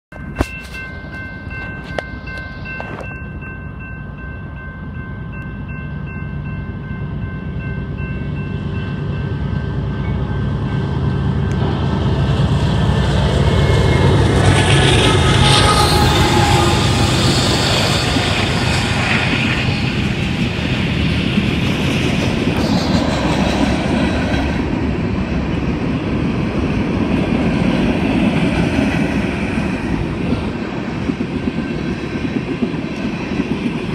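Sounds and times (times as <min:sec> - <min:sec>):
crossing bell ringing: 0:00.1 - 0:12.2, 0:13.3 - 0:21.4
diesel locomotive rumble: 0:00.1 - 0:33.9
train wheels rolling: 0:10.8 - 0:33.9.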